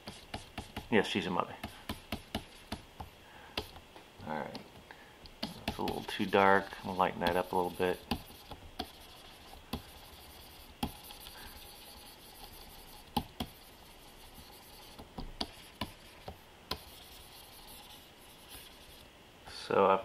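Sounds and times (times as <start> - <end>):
stylus tapping on tablet: 1.6 - 3.8, 7.3 - 9.0.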